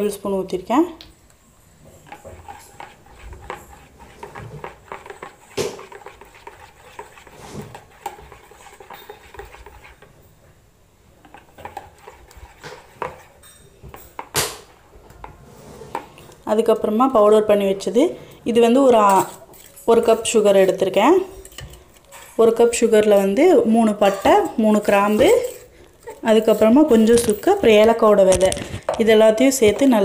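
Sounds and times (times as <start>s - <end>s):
spoon beating egg in bowl: 2.0s - 10.2s, 11.2s - 14.4s, 18.8s - 30.0s.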